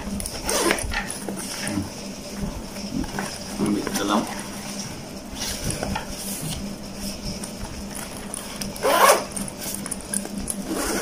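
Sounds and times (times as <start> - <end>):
zip rasp: 8.8 - 9.4, 10.6 - 11.0.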